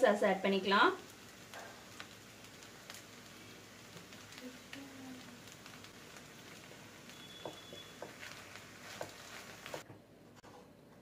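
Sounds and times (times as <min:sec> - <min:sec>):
faint sizzle of frying noodles: 0:00.0 - 0:10.0
wooden spatula scraping a pan: 0:05.6 - 0:09.8.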